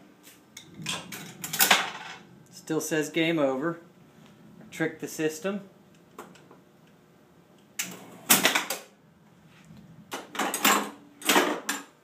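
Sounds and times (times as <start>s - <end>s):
pinball machine relays clattering: 0.7s - 2.3s, 10.3s - 11.9s.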